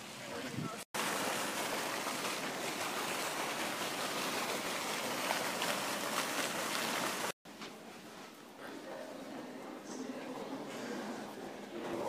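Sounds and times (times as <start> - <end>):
fountain water rushing: 0.0 - 7.4.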